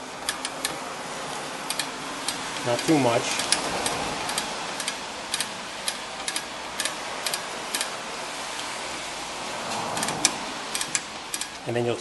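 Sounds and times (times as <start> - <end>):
steady hiss: 0.0 - 12.0
brake adjuster wheel clicking: 1.6 - 7.9, 9.8 - 11.6.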